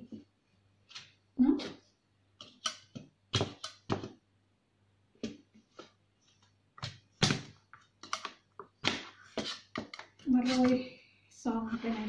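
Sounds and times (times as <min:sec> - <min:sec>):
knife scraping metal pan: 0:09.3 - 0:10.8.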